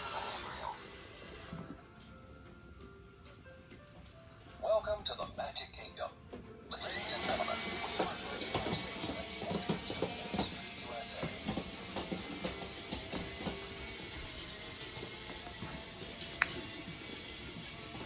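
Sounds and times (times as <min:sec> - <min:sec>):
toy ride motors whirring: 0:00.0 - 0:02.1, 0:06.7 - 0:18.0.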